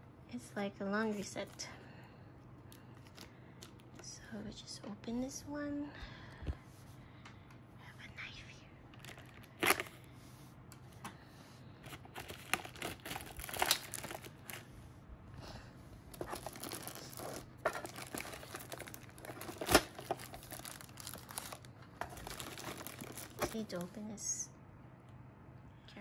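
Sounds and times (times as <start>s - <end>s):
plastic wrapping crinkling and tearing: 2.7s - 4.0s, 8.9s - 10.1s, 11.8s - 14.7s, 16.1s - 24.0s.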